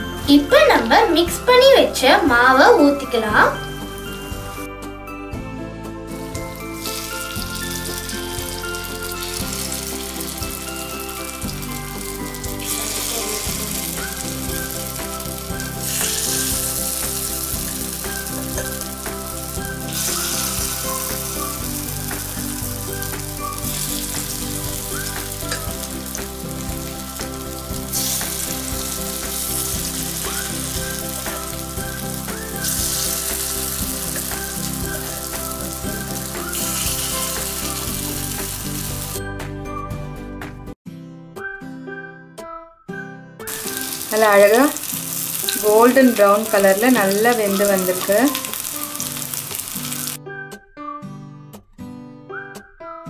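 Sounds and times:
background music: 0.0s - 53.0s
batter sizzling in hot oil: 6.2s - 39.2s, 43.5s - 50.2s.

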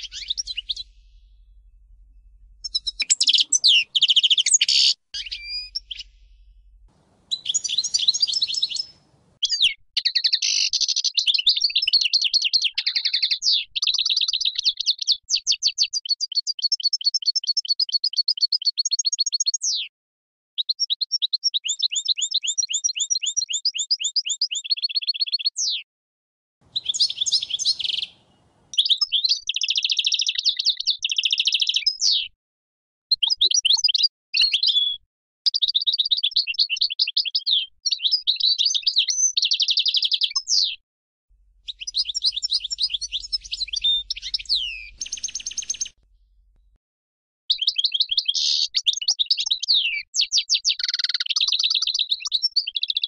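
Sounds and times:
goldfinch singing: 0.0s - 1.4s, 2.6s - 6.4s, 7.2s - 11.6s, 26.7s - 32.1s, 41.7s - 46.0s.

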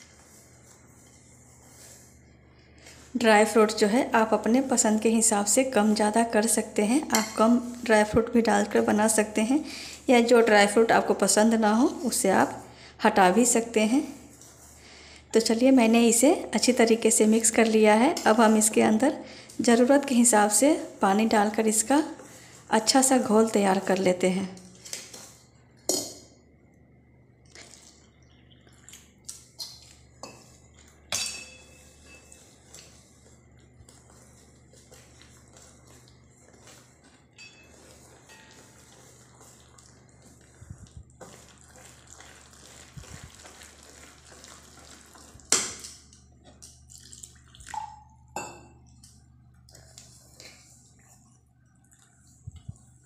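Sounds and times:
whisk stirring dry flour: 0.0s - 24.0s, 25.0s - 25.5s, 29.6s - 46.2s
metal cup and whisk clinking: 31.1s - 32.4s, 37.4s - 38.8s
water pouring: 46.9s - 48.1s.

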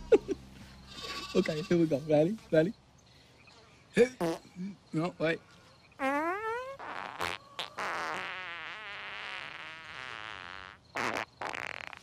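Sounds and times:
buzzing raspberry into hand: 4.2s - 4.6s, 6.0s - 12.0s.

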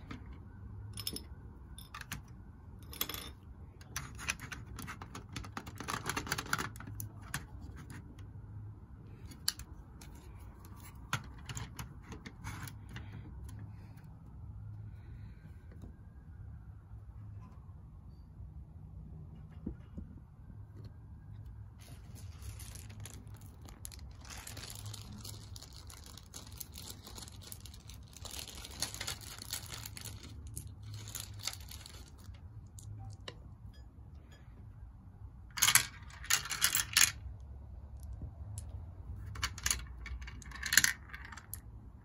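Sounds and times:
plastic marble-run pieces rattling: 2.9s - 8.0s, 9.4s - 13.2s, 21.8s - 33.2s, 35.5s - 37.3s, 38.0s - 41.7s.

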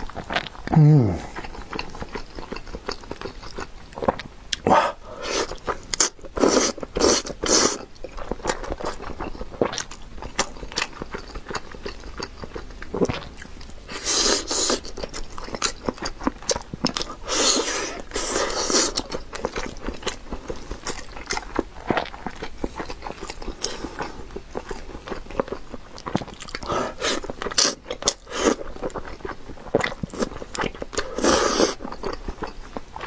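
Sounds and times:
wet chewing and smacking: 0.0s - 4.7s, 5.3s - 33.0s
slurping and biting: 5.2s - 7.9s, 13.0s - 24.8s, 25.4s - 32.3s.

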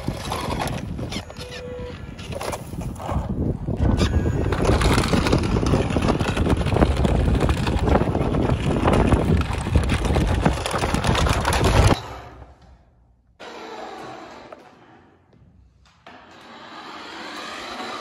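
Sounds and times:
wind rumble on microphone: 0.0s - 12.0s.

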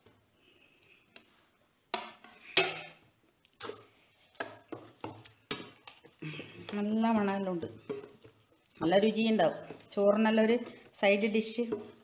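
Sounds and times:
wooden spoon scraping metal bowl: 3.6s - 12.0s.

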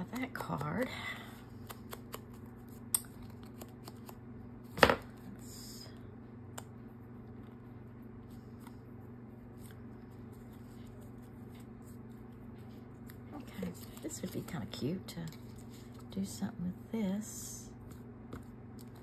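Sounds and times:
steady low hum: 0.0s - 19.0s
paper rustling: 9.5s - 16.1s.

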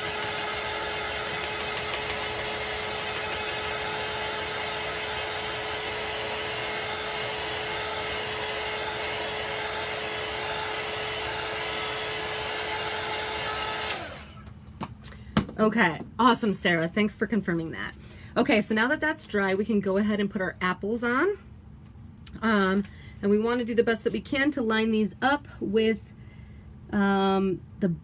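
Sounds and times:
electric dryer blowing and humming: 0.0s - 14.6s.

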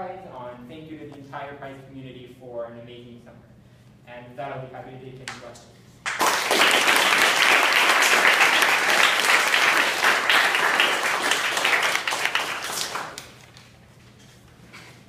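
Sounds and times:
audience applauding: 6.1s - 13.6s.

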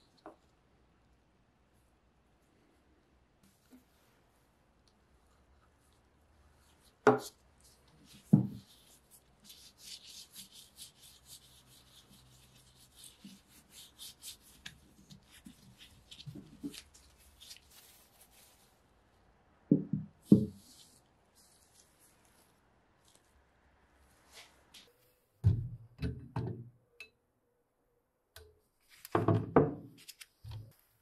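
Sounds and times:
gloved fingers rubbing paste on metal: 6.6s - 18.8s.

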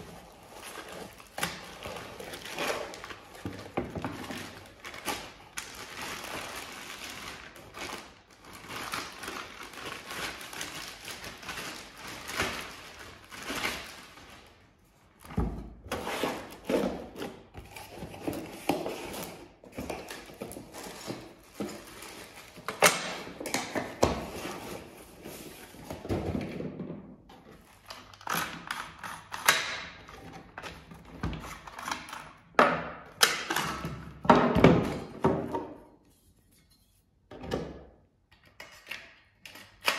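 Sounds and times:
plastic wrapping rustling: 0.0s - 15.3s, 16.0s - 26.0s.

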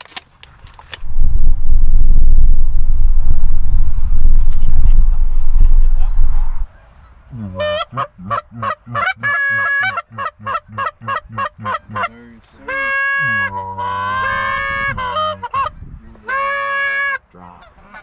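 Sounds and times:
goose clucking and honking: 7.0s - 18.0s.

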